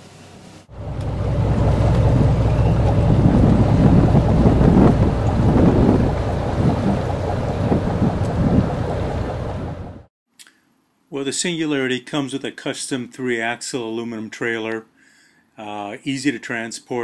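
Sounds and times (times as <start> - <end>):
speedboat engine rumbling: 0.7 - 10.1
water noise: 0.7 - 10.1
wind buffeting microphone: 0.8 - 10.1.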